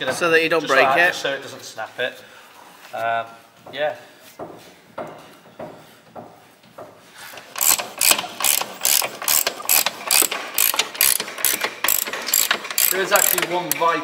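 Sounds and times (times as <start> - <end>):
socket ratchet clicking: 7.4 - 14.0.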